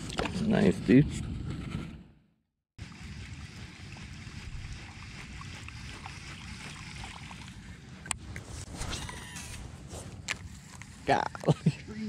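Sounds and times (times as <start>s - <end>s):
water lapping: 2.8s - 8.8s.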